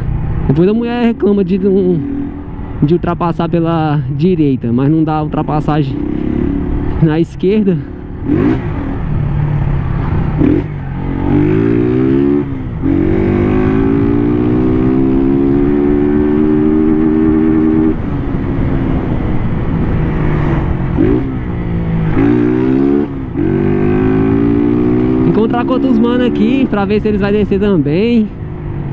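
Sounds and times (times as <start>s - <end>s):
motorcycle engine shifting gears: 7.9s - 27.2s.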